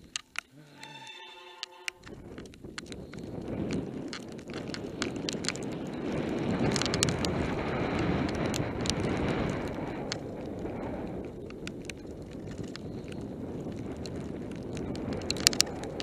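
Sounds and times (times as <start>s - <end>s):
bike rattling and clicking: 0.0s - 0.5s, 2.0s - 16.0s
wind on microphone: 1.6s - 16.0s
tyres crunching over gravel: 2.1s - 10.6s.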